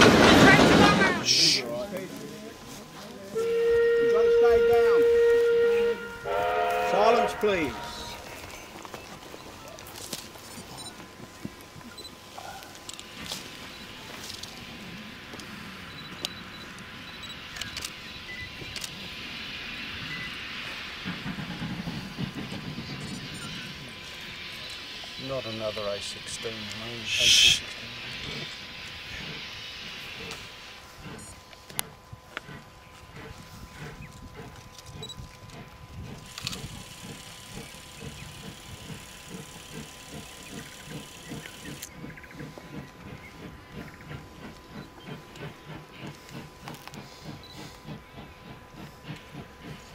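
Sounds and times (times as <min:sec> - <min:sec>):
distant steam train rumble: 0:00.0 - 0:49.9
camera beeps: 0:10.8 - 0:11.0, 0:15.9 - 0:18.9
steam hiss: 0:12.1 - 0:32.6, 0:35.6 - 0:49.9.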